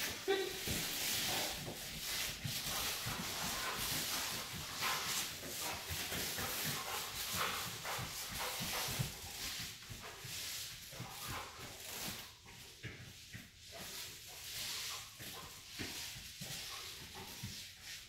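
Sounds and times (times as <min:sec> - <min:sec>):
dog sniffing hard: 0:00.0 - 0:12.4
soft footsteps on carpet: 0:00.0 - 0:18.0.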